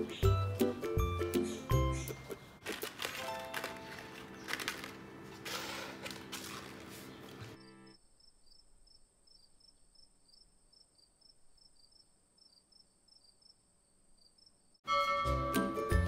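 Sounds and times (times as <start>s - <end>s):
background music: 0.0s - 8.0s, 14.8s - 16.0s
faint cricket chirping: 7.6s - 14.8s.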